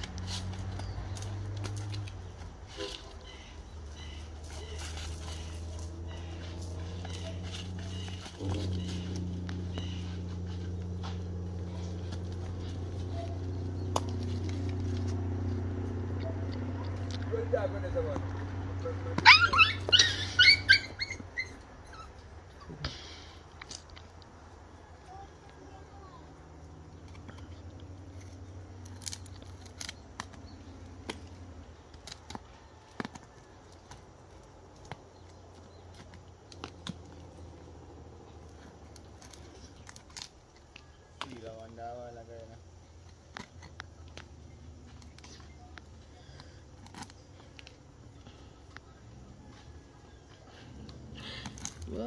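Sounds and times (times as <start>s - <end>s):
low motor hum: 0.0s - 22.3s
knife scraping charred skin: 28.1s - 34.0s.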